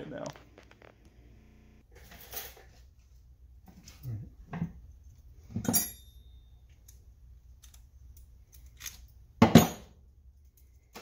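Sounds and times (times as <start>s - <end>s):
metal tool clinking: 5.5s - 7.0s.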